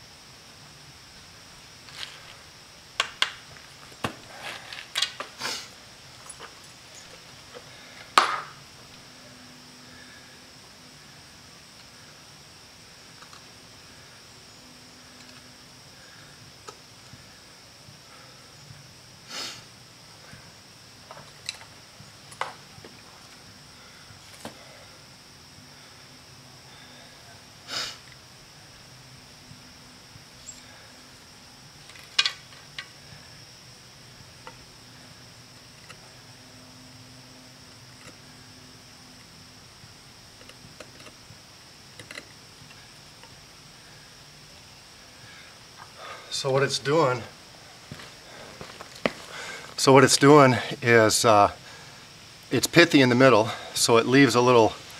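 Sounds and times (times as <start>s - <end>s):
high insect buzz: 0.0s - 54.9s
steady high hiss: 0.0s - 54.9s
wooden board knocking down: 8.2s - 8.5s.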